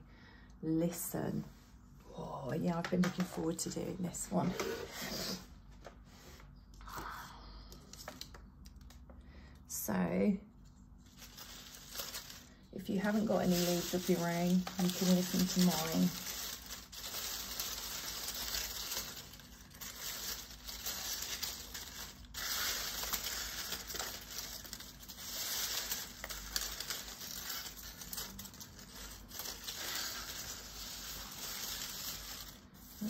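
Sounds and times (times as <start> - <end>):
dry leaves rustling and crackling: 11.0 - 33.0.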